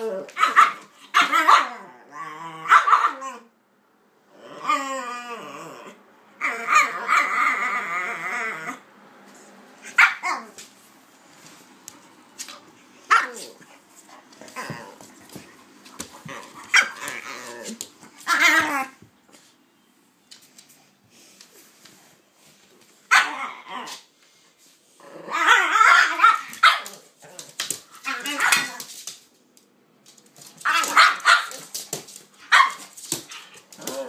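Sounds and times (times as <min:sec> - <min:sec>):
dog yelping: 0:00.2 - 0:01.9, 0:09.8 - 0:10.6, 0:16.5 - 0:17.5, 0:18.2 - 0:19.0, 0:23.1 - 0:23.9, 0:30.6 - 0:31.6.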